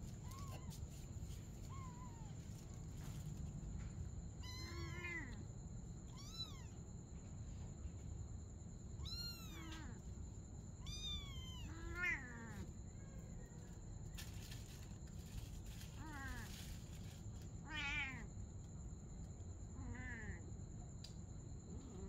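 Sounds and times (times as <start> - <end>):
kittens mewing: 4.4 - 5.4, 19.8 - 20.4.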